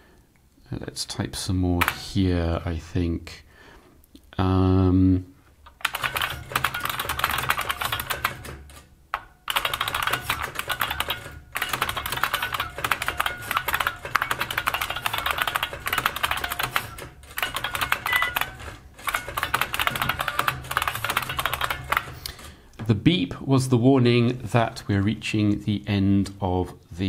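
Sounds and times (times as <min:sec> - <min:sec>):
rapid typewriter key clicks: 0:05.8 - 0:22.5.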